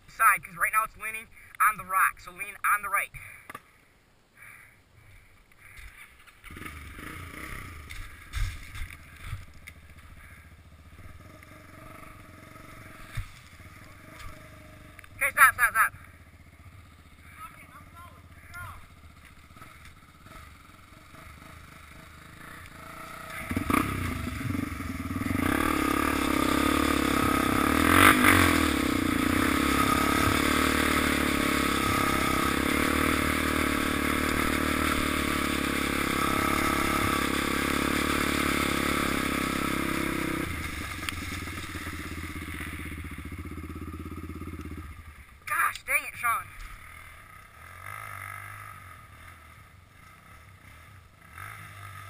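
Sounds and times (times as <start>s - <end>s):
quad engine running: 5.7s - 52.0s
tyres on gravel: 7.8s - 10.5s, 33.4s - 43.3s.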